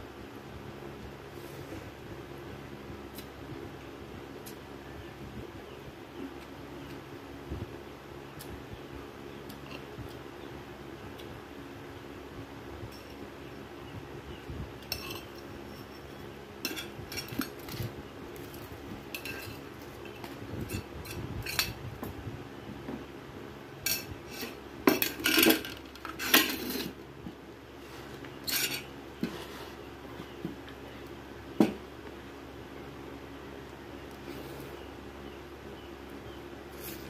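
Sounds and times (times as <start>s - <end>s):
cutlery clinking on a plate: 14.8s - 15.4s.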